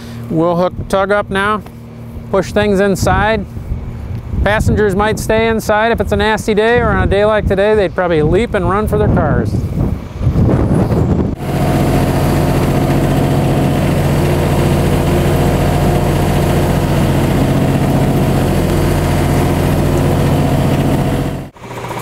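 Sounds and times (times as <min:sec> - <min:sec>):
tug engine running: 0:11.3 - 0:22.0.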